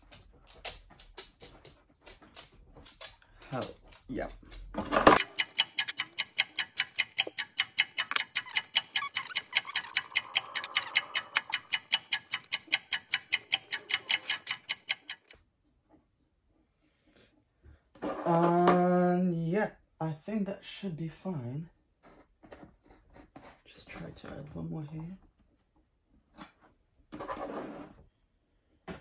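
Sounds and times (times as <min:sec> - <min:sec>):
clock ticking: 0:05.2 - 0:15.4.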